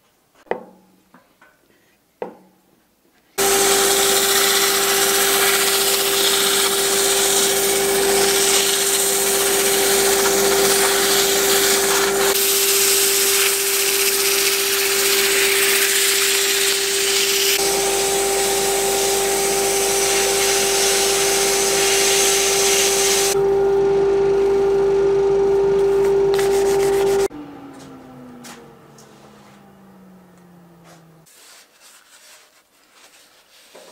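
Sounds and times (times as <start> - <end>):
sandpaper hissing on spinning wood: 3.4 - 23.4, 26.4 - 27.3
wood lathe motor hum: 3.4 - 30.8.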